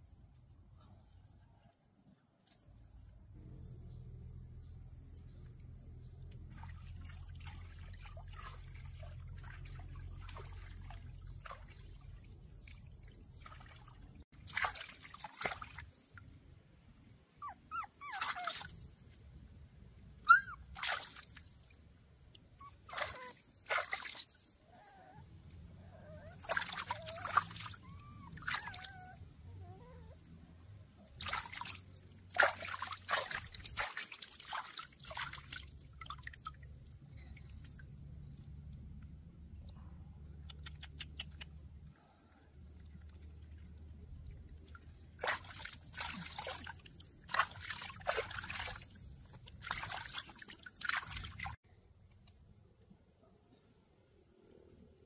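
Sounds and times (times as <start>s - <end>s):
low steady rumble: 2.8s - 14.5s, 35.6s - 45.2s
puppy whimpering and crying: 17.4s - 18.7s, 20.3s - 20.7s, 22.6s - 23.4s, 24.7s - 25.2s, 25.8s - 30.2s.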